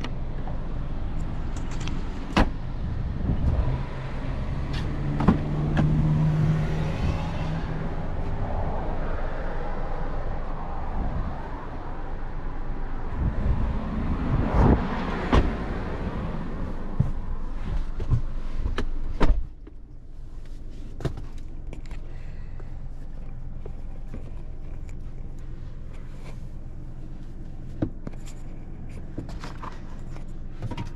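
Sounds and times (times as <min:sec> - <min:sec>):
outside vehicle noise: 0:00.0 - 0:30.9
car doors clunking and clicking: 0:01.6 - 0:02.6, 0:04.8 - 0:06.0, 0:15.1 - 0:15.8
car door shutting: 0:15.2 - 0:15.6.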